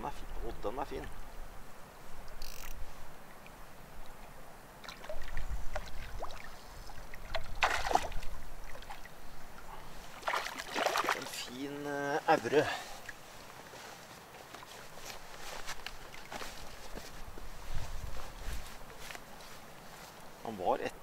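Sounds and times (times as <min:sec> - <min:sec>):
water lapping against rocky shore: 0:04.0 - 0:11.7
wind rumbling on microphone: 0:05.1 - 0:10.1, 0:15.4 - 0:19.0.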